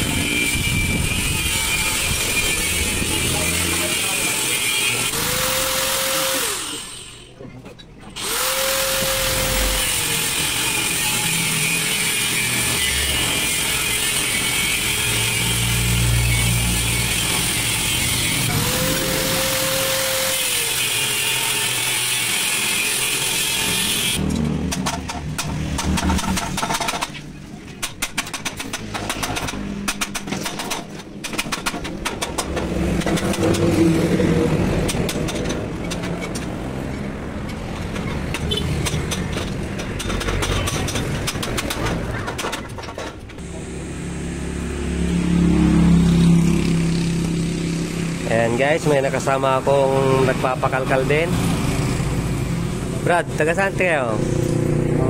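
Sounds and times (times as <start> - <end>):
power tool grinding metal: 0.0 - 7.4, 8.1 - 27.2
knocks and clanks: 24.2 - 36.7, 37.4 - 43.5.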